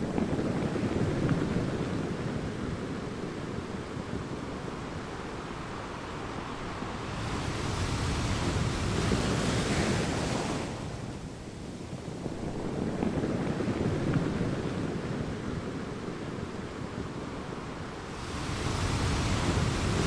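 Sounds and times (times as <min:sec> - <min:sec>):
ocean surf breaking: 0:04.0 - 0:11.4, 0:12.4 - 0:20.0.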